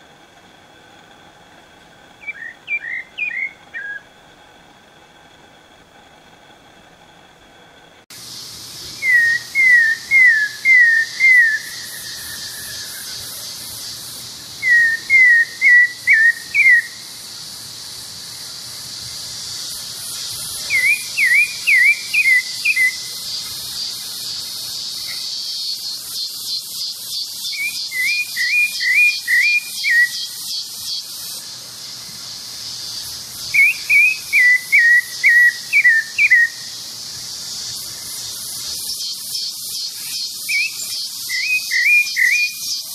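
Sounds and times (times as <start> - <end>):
insects pulsing buzz: 0.0 - 42.9
thrush singing whistled notes: 2.2 - 4.2, 8.8 - 17.4, 18.3 - 31.5, 32.6 - 42.9.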